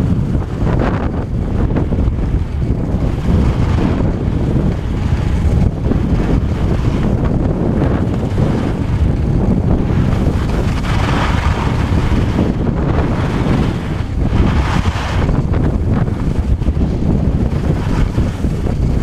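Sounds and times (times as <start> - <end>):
wind buffeting microphone: 0.0 - 19.0
skis hissing over snow: 14.4 - 15.3.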